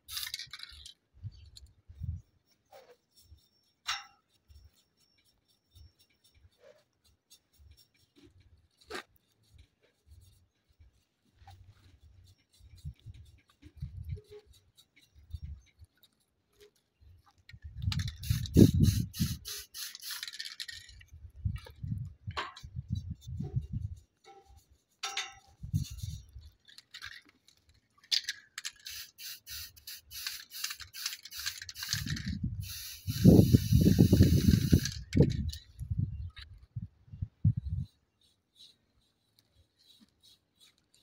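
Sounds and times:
spray paint can hissing: 0:00.0 - 0:00.9, 0:17.8 - 0:20.8, 0:28.6 - 0:35.6.

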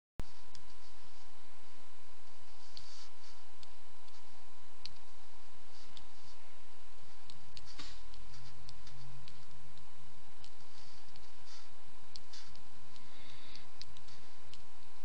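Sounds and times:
faint steady tone: 0:00.2 - 0:15.0
computer mouse clicks: 0:02.6 - 0:05.1, 0:07.1 - 0:15.0.

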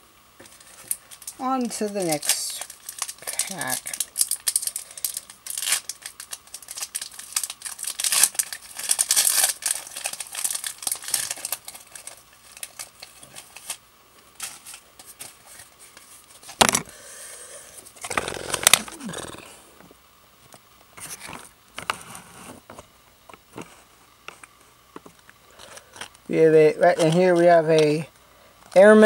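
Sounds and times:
foil pack crinkling and tearing: 0:00.4 - 0:13.8, 0:14.4 - 0:16.7, 0:18.0 - 0:19.4, 0:25.5 - 0:28.0.

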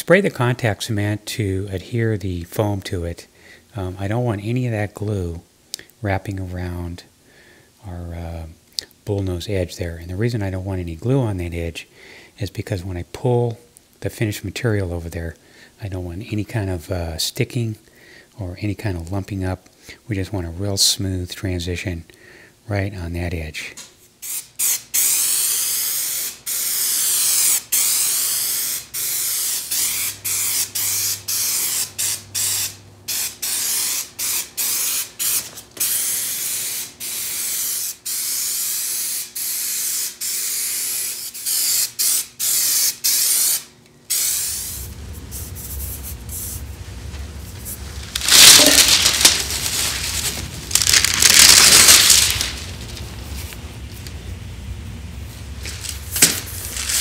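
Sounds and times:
aerosol spray hissing: 0:24.2 - 0:46.8, 0:47.4 - 0:52.7, 0:55.6 - 0:57.0
low hum: 0:44.4 - 0:57.0.

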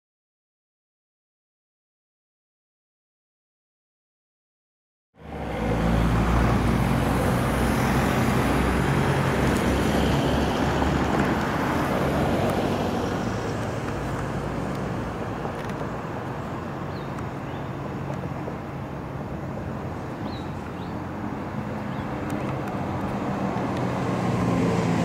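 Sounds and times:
road noise: 0:05.2 - 0:25.0
vehicle engine droning: 0:05.2 - 0:25.0.

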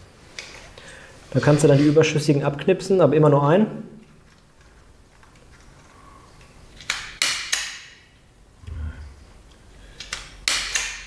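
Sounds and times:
wire cutter snapping wire: 0:06.8 - 0:07.9, 0:10.0 - 0:11.0.

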